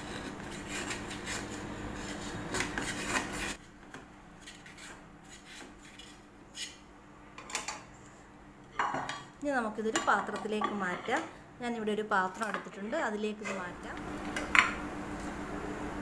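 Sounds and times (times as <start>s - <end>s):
knife scraping metal tin: 0.0s - 3.6s.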